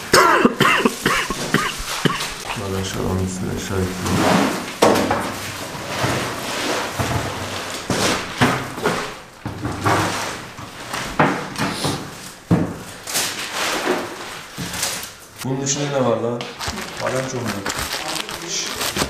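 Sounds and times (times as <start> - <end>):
furniture and boxes knocking: 4.0 - 13.0.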